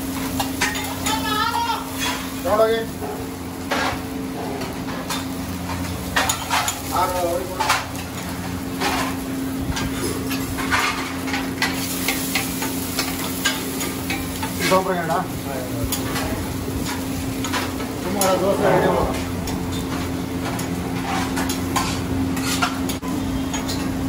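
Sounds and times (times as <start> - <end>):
pancake sizzling on griddle: 0.0 - 24.0
spatula scraping metal pan: 16.9 - 23.9.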